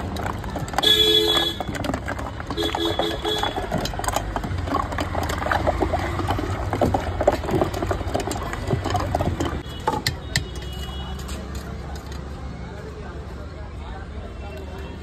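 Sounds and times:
churner sloshing in curd: 0.0s - 11.1s.

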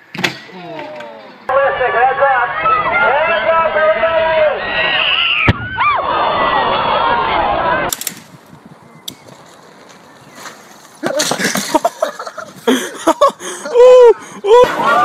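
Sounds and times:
shouting voices: 0.6s - 7.9s
crowd shouting and cheering: 1.4s - 7.9s, 14.1s - 15.0s.

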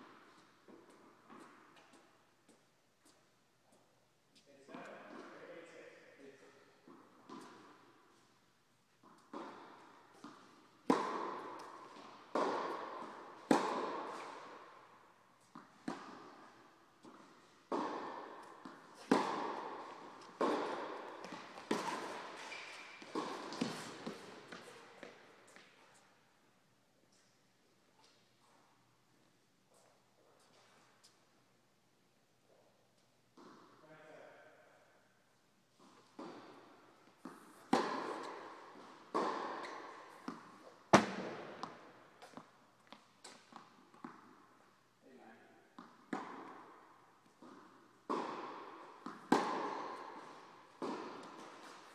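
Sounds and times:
tennis ball pops in echoing hall: 6.8s - 8.3s, 9.0s - 26.1s, 34.8s - 51.9s.

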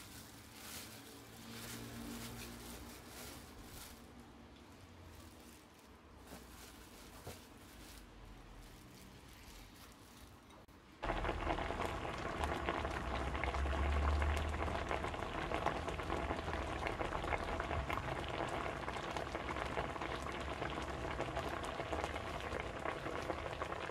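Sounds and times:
dense crackling and pattering: 11.0s - 23.9s.

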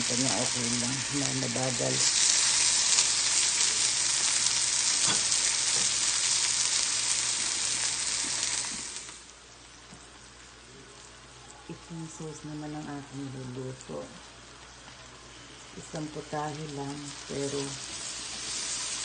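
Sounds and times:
chicken sizzling in a pan: 0.0s - 10.3s, 12.2s - 19.0s.

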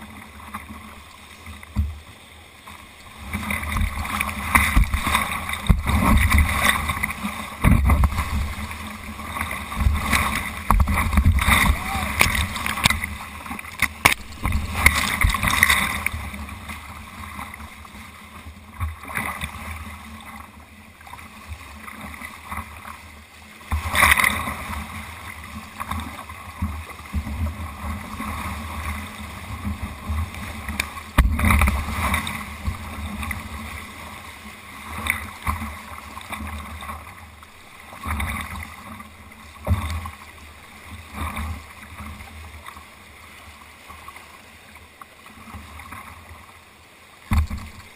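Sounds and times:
paddle strokes: 0.0s - 47.9s
whitewater rapids rushing: 3.0s - 18.1s
loud water splashes: 3.4s - 16.2s.

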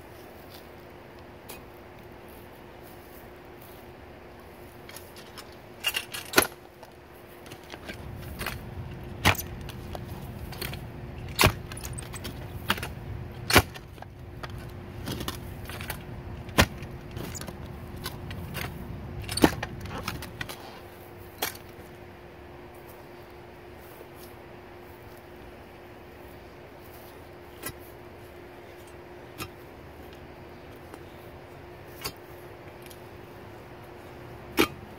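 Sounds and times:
dirt crunching and scraping: 0.0s - 34.9s
post-hole digger striking soil: 7.9s - 20.7s, 34.5s - 34.9s.

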